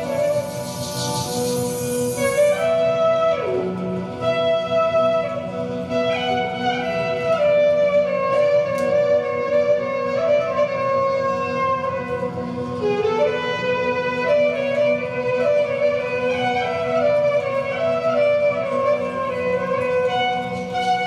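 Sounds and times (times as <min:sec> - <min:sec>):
low sustained note: 0:00.0 - 0:06.6.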